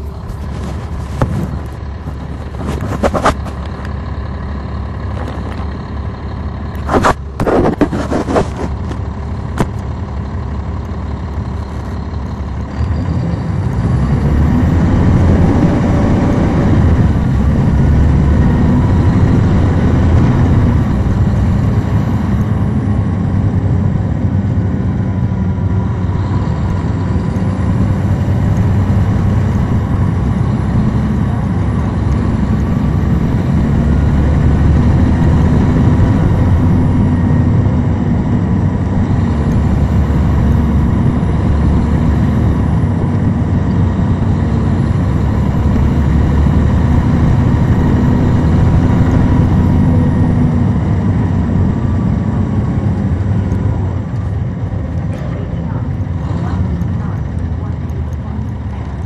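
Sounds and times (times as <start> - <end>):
bus diesel engine: 0.0 - 59.0.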